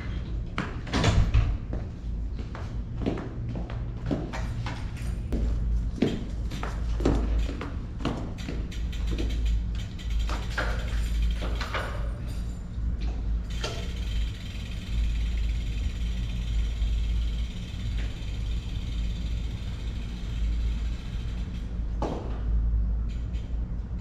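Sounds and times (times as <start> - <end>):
bike tyres on road: 6.1 - 11.9, 13.5 - 22.4.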